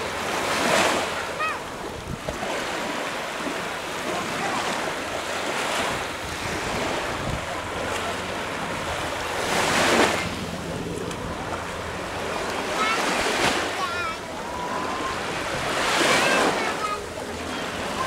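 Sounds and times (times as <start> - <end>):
surf washing onto beach: 0.0 - 18.0
wind on microphone: 1.8 - 3.0, 5.6 - 12.4.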